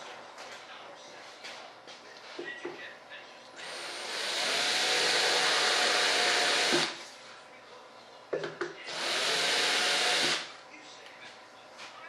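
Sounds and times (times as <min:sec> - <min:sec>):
electric drill boring: 0:03.6 - 0:07.0, 0:08.9 - 0:10.5.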